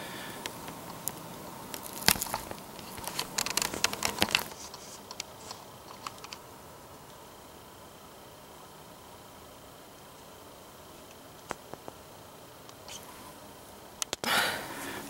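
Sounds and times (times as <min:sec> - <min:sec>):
crinkling handling noise: 0:00.2 - 0:06.5.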